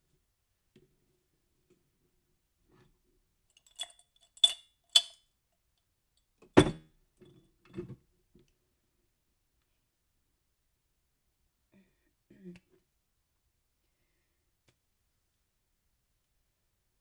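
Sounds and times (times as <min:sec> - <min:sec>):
sharp ringing clinks: 0:03.6 - 0:05.2.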